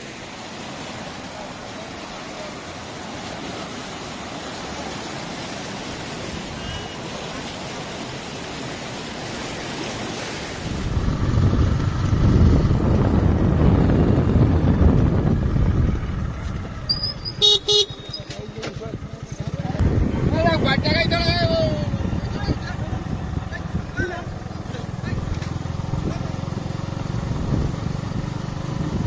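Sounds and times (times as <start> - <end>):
floodwater rushing: 0.0 - 14.9, 15.8 - 29.0
deep rumble: 10.7 - 17.4, 18.0 - 26.2.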